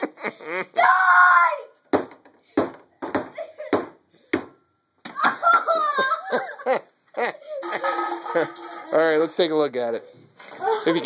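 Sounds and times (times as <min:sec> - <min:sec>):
people laughing: 0:00.0 - 0:00.8, 0:05.2 - 0:08.6
excited voices: 0:00.6 - 0:01.8.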